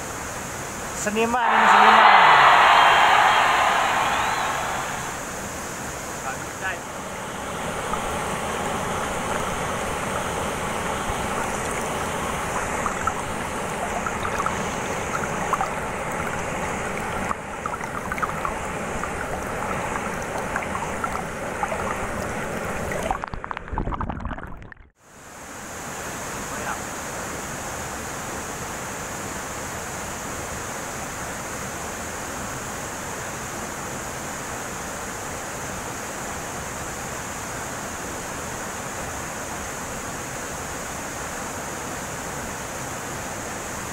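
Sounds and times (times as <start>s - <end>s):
waterfall rushing: 1.2s - 5.5s, 6.2s - 23.2s
water splashing: 7.0s - 24.6s.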